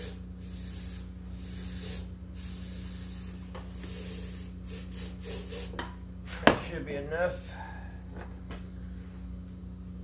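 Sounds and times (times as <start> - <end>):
aerosol can hissing: 0.0 - 5.8.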